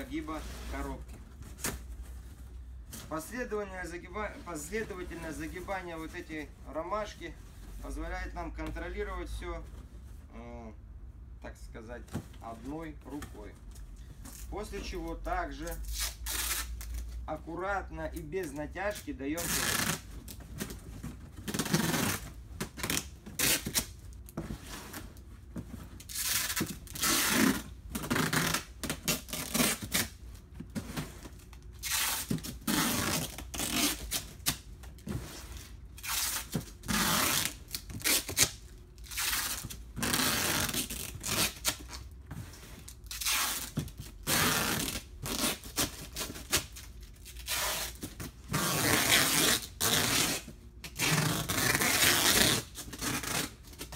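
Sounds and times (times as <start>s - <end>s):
cardboard scraping and crinkling: 0.0s - 8.1s, 18.8s - 38.6s, 39.2s - 47.1s.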